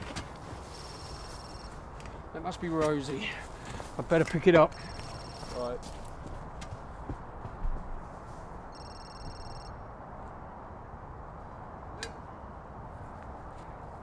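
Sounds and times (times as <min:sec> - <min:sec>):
outdoor background noise: 0:00.0 - 0:14.0
phone ringtone: 0:00.8 - 0:01.8, 0:04.7 - 0:05.7, 0:08.7 - 0:09.8.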